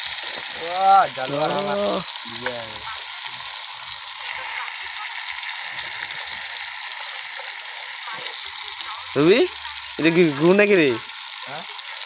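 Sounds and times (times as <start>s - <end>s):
curry sizzling in wok: 0.0s - 12.0s
person speaking: 0.6s - 3.0s.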